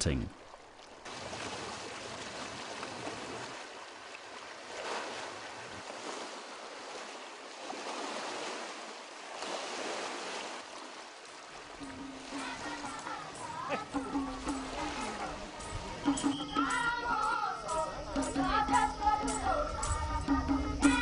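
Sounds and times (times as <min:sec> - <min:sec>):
waves lapping on rocky shore: 0:00.0 - 0:16.2.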